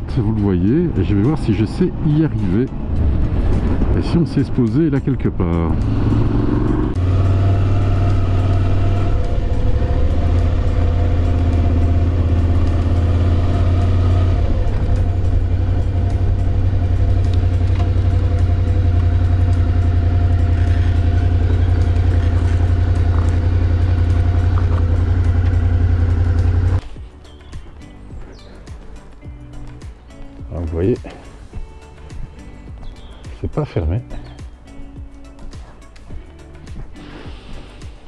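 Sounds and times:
motorcycle engine rumbling: 0.0s - 29.7s.

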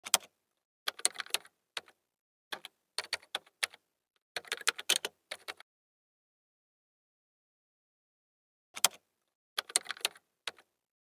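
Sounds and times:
keyboard typing clicks: 0.0s - 0.3s, 0.9s - 2.0s, 4.4s - 5.6s, 8.8s - 9.0s, 9.6s - 10.7s.

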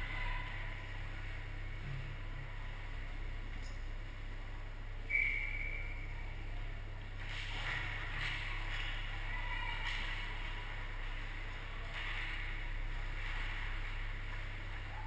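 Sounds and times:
faint far-off voices: 0.0s - 2.6s, 6.4s - 15.0s
low hum of arena: 0.0s - 15.0s.

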